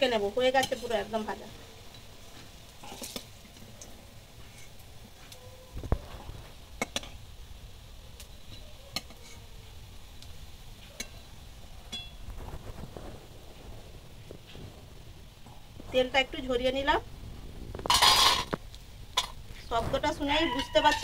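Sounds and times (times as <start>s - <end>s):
oil sizzling: 0.0s - 21.0s
metal spatula scraping a wok: 0.5s - 1.1s, 2.3s - 3.4s, 4.4s - 4.8s, 9.0s - 9.5s, 17.9s - 18.6s, 20.3s - 21.0s.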